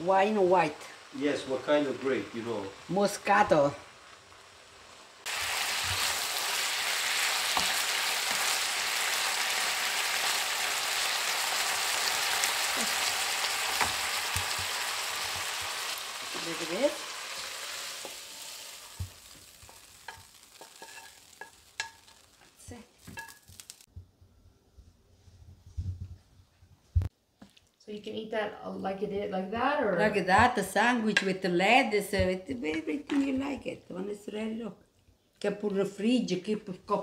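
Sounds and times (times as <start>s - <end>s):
meat sizzling in a frying pan: 0.0s - 23.9s
spatula knocking and scraping: 19.0s - 22.2s.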